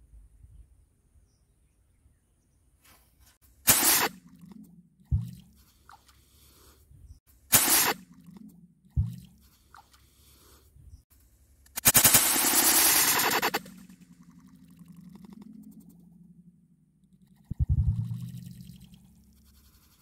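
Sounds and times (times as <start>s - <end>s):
firework rocket hissing: 3.7s - 4.1s
dull underwater thump: 5.1s - 5.5s, 8.9s - 9.4s, 17.6s - 18.2s.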